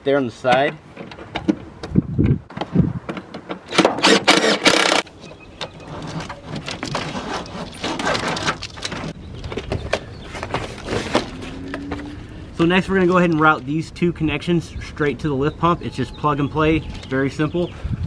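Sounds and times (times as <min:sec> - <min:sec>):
loud rasping scrape: 0:05.8 - 0:09.1.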